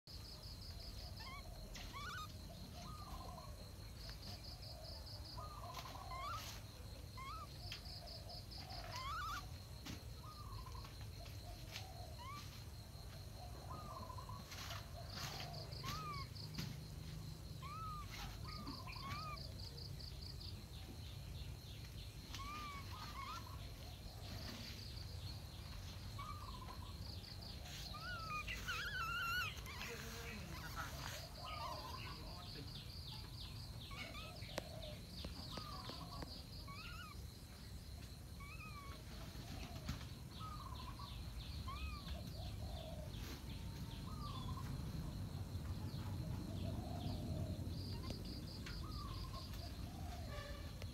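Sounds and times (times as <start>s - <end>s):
animal chirping calls: 0.8s - 3.6s, 5.3s - 9.6s, 12.0s - 12.6s, 13.7s - 16.6s, 17.6s - 19.8s, 22.2s - 24.5s, 26.1s - 37.3s, 38.4s - 43.0s
low rumble of wind: 39.3s - 50.9s.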